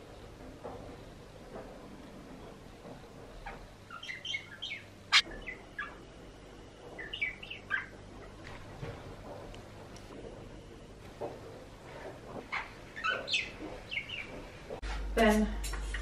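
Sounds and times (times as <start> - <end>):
budgerigar twittering: 3.9 - 6.0, 7.0 - 8.0, 12.5 - 14.3.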